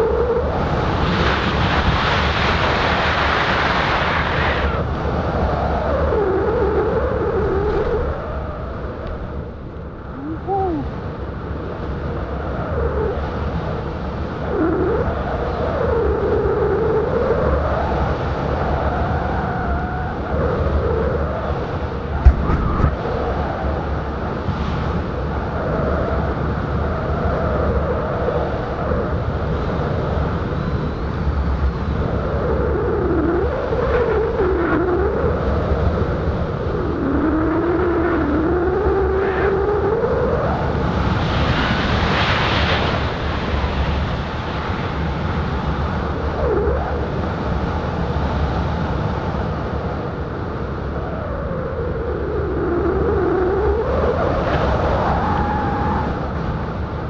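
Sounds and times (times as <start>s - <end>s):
rushing wind on microphone: 0.0s - 57.0s
wavering wind whistle: 2.5s - 24.2s, 49.6s - 57.0s.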